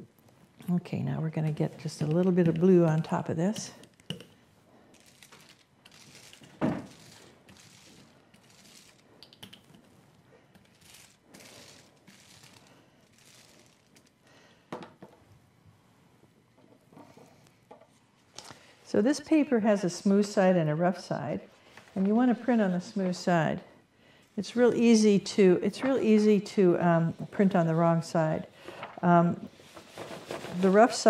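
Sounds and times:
brayer swishing and crinkling: 5.0 - 9.1, 10.6 - 14.2.

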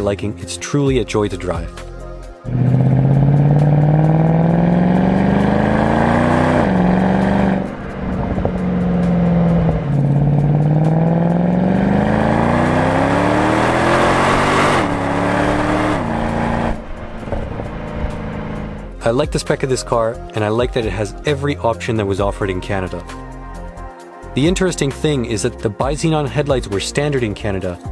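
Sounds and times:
car engine accelerating hard: 2.5 - 18.9.

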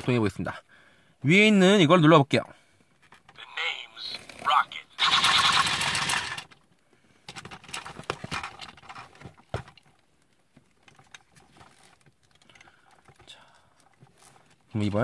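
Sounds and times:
electronic blaster sound effect: 5.0 - 6.4
plastic toy clicks and rattles: 5.0 - 6.6.

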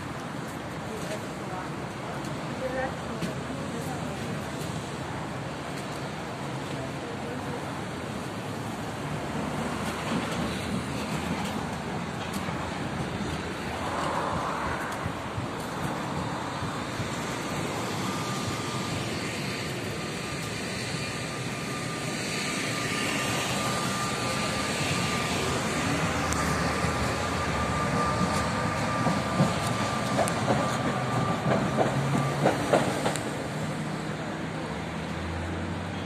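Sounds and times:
tram car rumble: 0.0 - 36.0
tram high whine: 0.0 - 36.0
wheels clacking over rail joints: 26.3 - 33.5.

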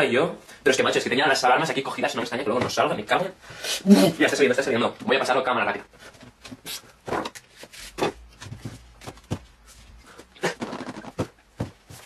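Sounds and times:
cardboard box knocks and rustles: 10.6 - 12.0.

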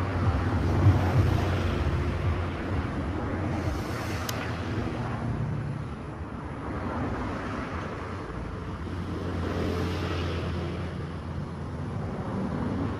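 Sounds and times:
road traffic rumble: 0.0 - 12.9.

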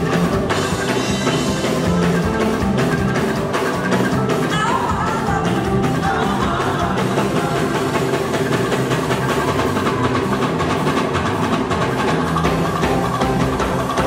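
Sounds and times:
bass line: 0.0 - 14.0
drums steady beat: 0.0 - 14.0
gospel band music: 0.0 - 14.0.

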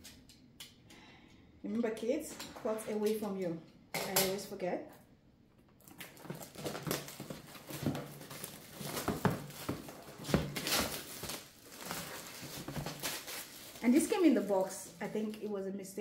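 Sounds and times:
plastic shrink wrap crinkling: 5.8 - 15.7.

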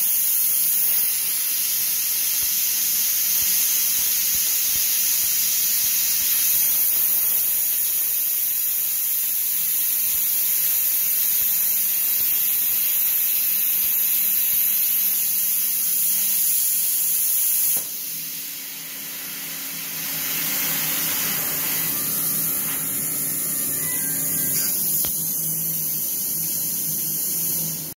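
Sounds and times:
plasma cutter hissing: 0.0 - 27.9
low hum: 18.6 - 25.4.

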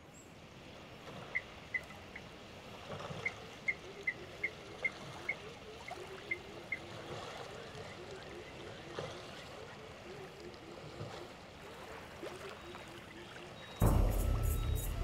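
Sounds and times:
low wavering call: 13.8 - 15.0
short high chirps: 13.8 - 15.0
water washing: 13.8 - 15.0.

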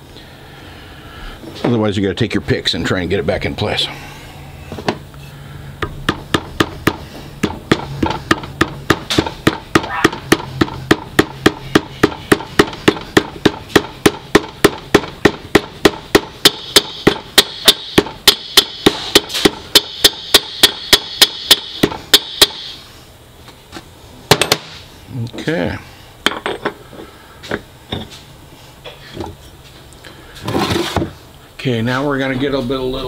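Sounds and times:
hammer knocking on metal: 5.8 - 22.6.

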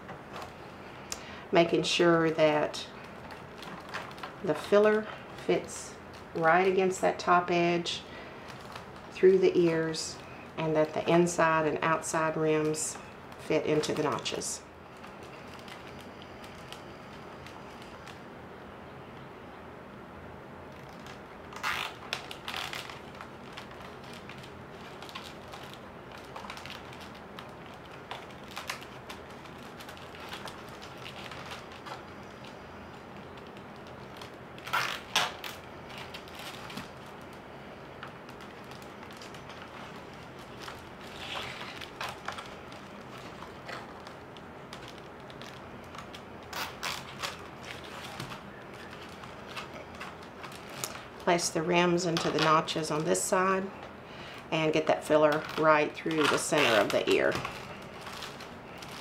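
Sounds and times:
basket reed creaking: 20.7 - 53.3, 54.3 - 59.0.

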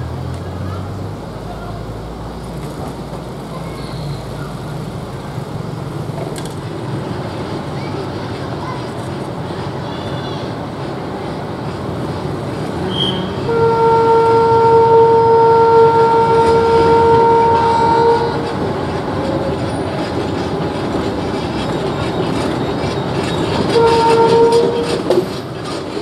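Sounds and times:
diesel locomotive engine: 0.0 - 26.0
train horn blast: 12.8 - 18.7, 23.7 - 25.2.

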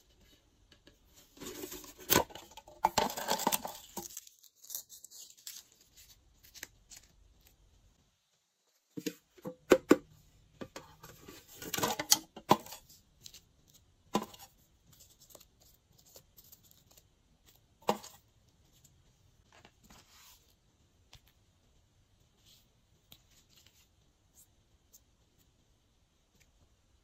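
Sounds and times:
plastic crackling: 0.8 - 7.6.

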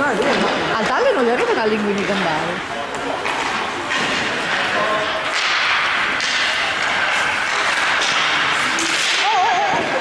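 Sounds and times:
stick clacking on puck: 2.9 - 9.9
skate wheels hissing: 3.4 - 10.0.

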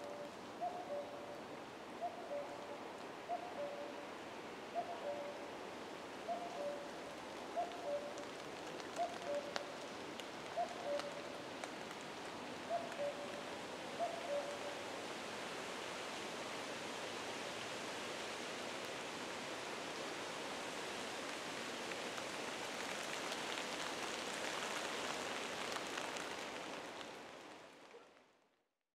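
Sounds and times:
cuckoo calling: 0.0 - 1.4, 2.0 - 4.0, 4.8 - 5.4, 6.3 - 6.9, 7.6 - 8.2, 9.0 - 9.6, 10.6 - 11.3, 12.7 - 13.4, 14.0 - 14.8
rushing hiss of leaves or rain: 0.0 - 28.4.

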